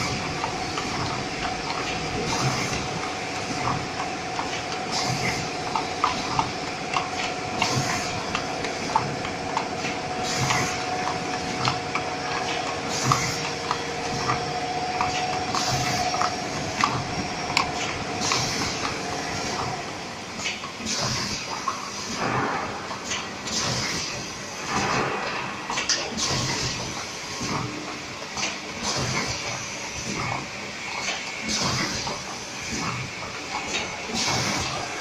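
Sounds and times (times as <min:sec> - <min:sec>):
steady machine whine: 0:00.0 - 0:20.8
machine mechanical clatter: 0:00.0 - 0:35.0.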